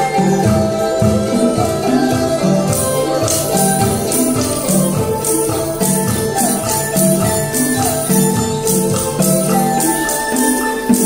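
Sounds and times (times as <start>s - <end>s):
drum strokes: 0.0s - 11.0s
traditional music melody: 0.0s - 11.0s
jingling cymbal shimmer: 2.7s - 11.0s.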